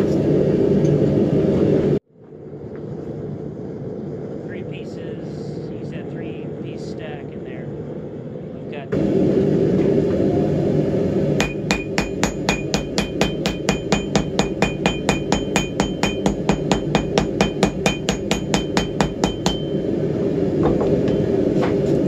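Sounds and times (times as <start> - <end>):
hammer tapping steel on anvil: 11.4 - 19.8.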